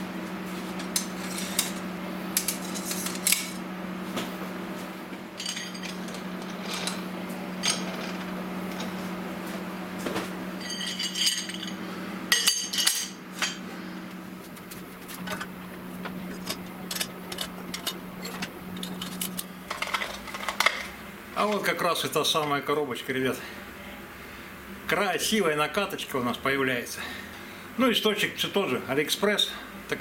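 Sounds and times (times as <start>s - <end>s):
steady low hum: 0.0s - 30.0s
metal tools clinking: 5.4s - 7.0s, 7.6s - 8.2s, 10.6s - 13.6s.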